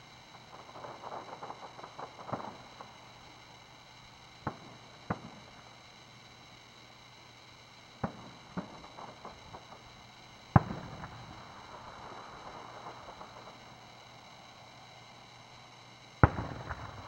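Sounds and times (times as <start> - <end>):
distant fireworks bangs: 0.0 - 5.7, 8.0 - 14.1, 16.2 - 17.0
faint fireworks pops: 0.0 - 17.0.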